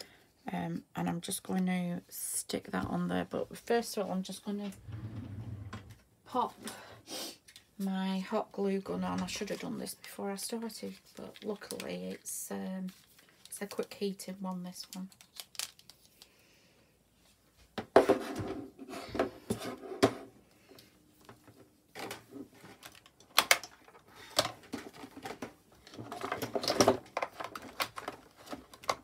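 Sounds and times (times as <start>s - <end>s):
craft tools clicking and knocking: 22.0s - 29.0s.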